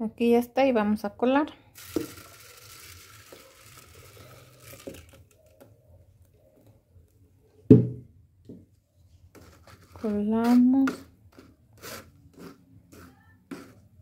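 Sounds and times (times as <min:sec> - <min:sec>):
liquid pouring through strainer: 0:01.8 - 0:05.5.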